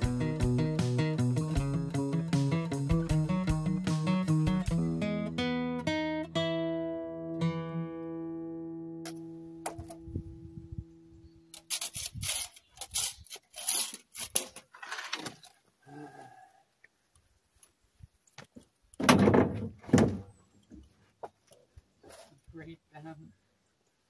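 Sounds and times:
acoustic guitar music: 0:00.0 - 0:10.8
loud thuds and scrapes: 0:19.0 - 0:20.3
wooden boards knocking: 0:19.0 - 0:20.3.

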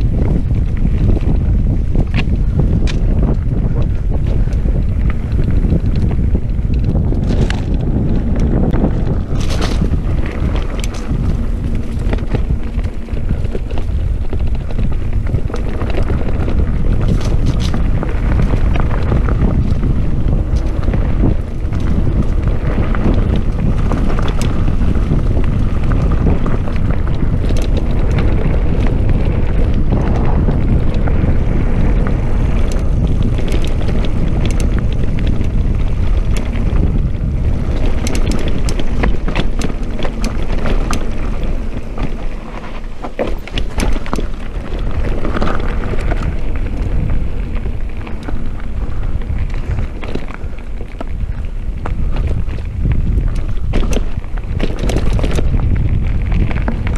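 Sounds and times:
bike clicks and rattles: 0:00.0 - 0:56.9
tyres rumbling on dirt: 0:00.0 - 0:56.9
wind buffeting microphone: 0:00.0 - 0:56.9.

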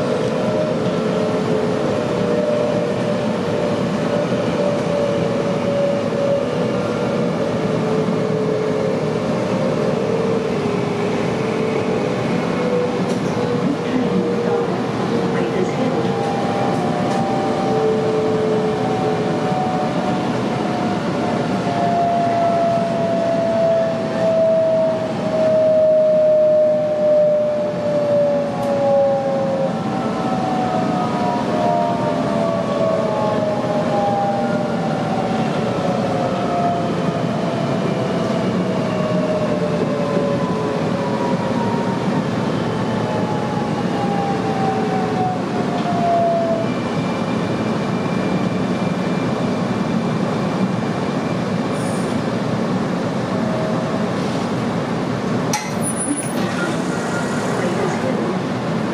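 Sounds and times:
wheels rumbling on track: 0:00.0 - 0:58.9
train traction motors whining: 0:54.8 - 0:58.9.

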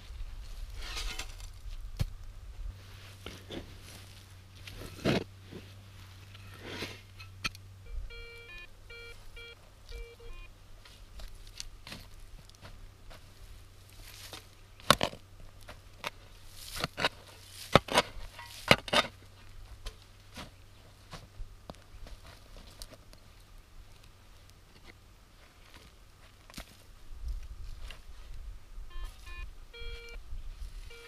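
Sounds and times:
sharp crunches and knocks: 0:03.2 - 0:05.7, 0:14.0 - 0:21.3
metal detector beeps: 0:07.2 - 0:10.5, 0:28.9 - 0:30.2, 0:30.8 - 0:31.0.

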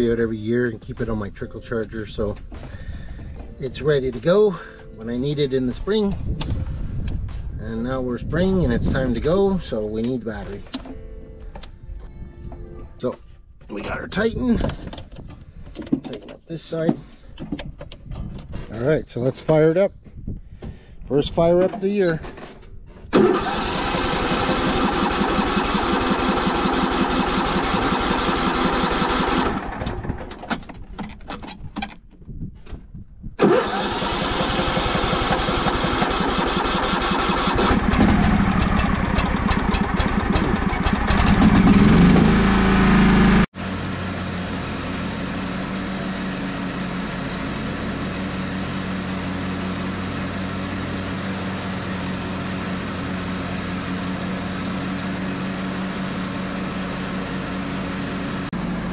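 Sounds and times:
tractor engine sputtering and revving: 0:23.1 - 0:31.8, 0:33.4 - 0:58.9.

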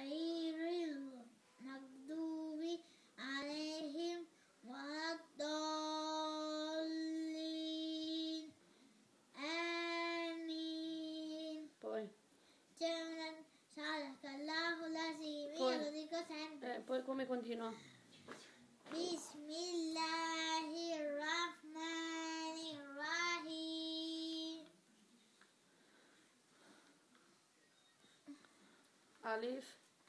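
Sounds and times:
boy chanting recitation: 0:12.8 - 0:16.6.

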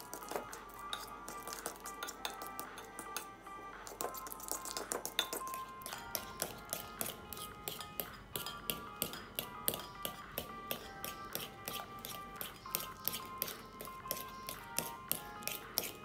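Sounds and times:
fork clicking against a bowl: 0:00.0 - 0:03.3, 0:03.9 - 0:16.0
background music: 0:00.0 - 0:16.0.

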